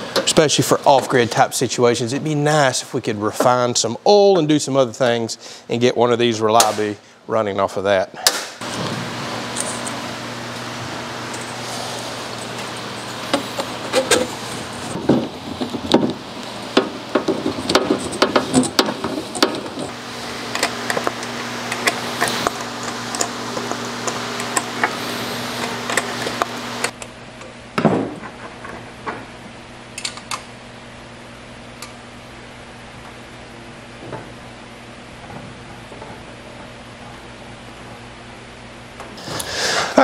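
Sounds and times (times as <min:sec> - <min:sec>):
steady low hum: 0:00.0 - 0:40.0
metal parts clinking and knocking: 0:17.2 - 0:19.9.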